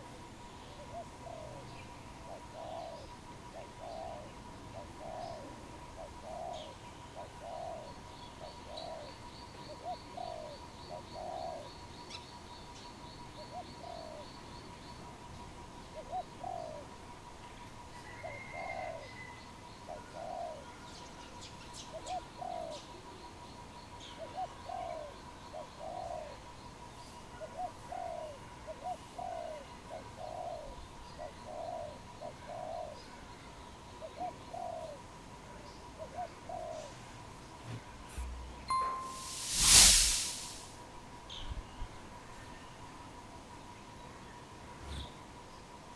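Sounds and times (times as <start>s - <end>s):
faint steady tone: 0.0s - 45.9s
dove cooing: 2.3s - 7.9s, 9.8s - 11.7s, 16.0s - 16.8s, 18.1s - 19.3s, 19.9s - 20.6s, 27.4s - 33.0s, 34.0s - 35.0s, 36.0s - 37.0s
faint high chirps: 37.6s - 40.7s
thin high trill: 37.6s - 40.7s.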